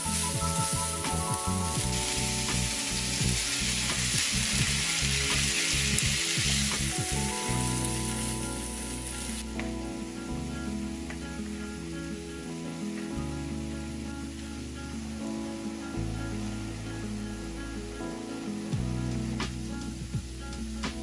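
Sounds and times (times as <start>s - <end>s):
meat sizzling in a frying pan: 0.0s - 9.6s.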